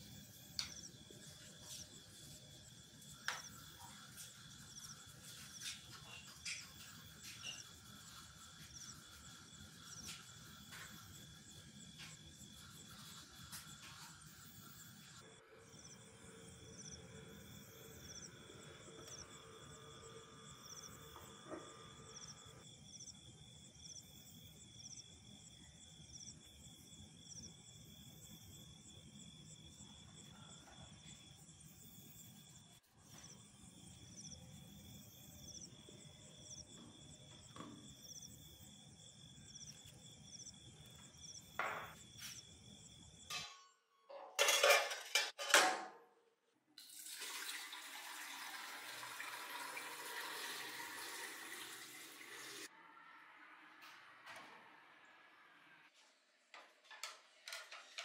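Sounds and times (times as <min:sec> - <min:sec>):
crickets chirping: 0:00.0 - 0:45.5, 0:47.2 - 0:58.0
liquid pouring into glass tank: 0:46.8 - 0:52.7.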